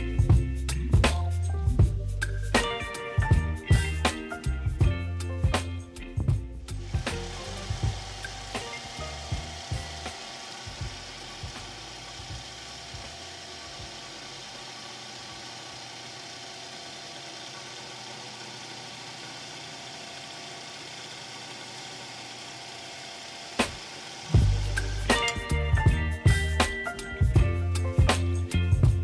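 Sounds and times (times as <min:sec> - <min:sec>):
drill drilling into metal: 0:06.7 - 0:25.5.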